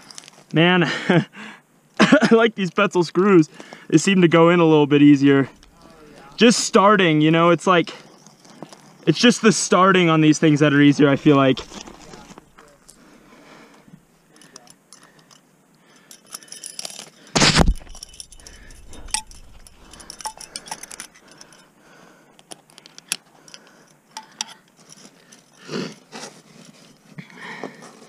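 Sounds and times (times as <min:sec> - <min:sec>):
climbing hardware clinking: 0:05.4 - 0:06.7, 0:11.0 - 0:13.4, 0:16.0 - 0:21.6
clicks and scrapes: 0:11.3 - 0:13.3, 0:16.8 - 0:21.6
loud thump: 0:17.4 - 0:19.9.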